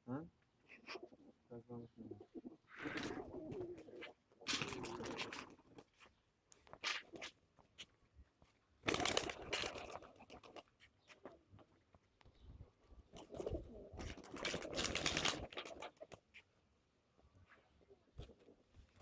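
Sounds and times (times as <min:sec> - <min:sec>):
pigeons cooing: 0:00.6 - 0:06.1, 0:08.8 - 0:11.8, 0:13.0 - 0:16.4, 0:17.7 - 0:19.0
wings flapping: 0:08.8 - 0:10.7, 0:13.1 - 0:16.3.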